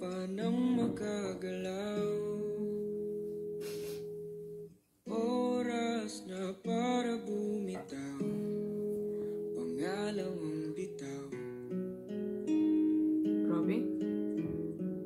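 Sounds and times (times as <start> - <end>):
man singing a slow ballad: 0.0 - 3.0, 5.1 - 11.6
acoustic guitar: 0.0 - 15.0.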